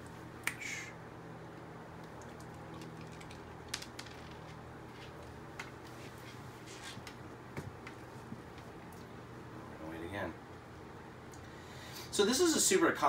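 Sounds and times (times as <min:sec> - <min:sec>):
low steady hum: 0:00.0 - 0:13.0
dog crunching kibble: 0:02.0 - 0:05.2.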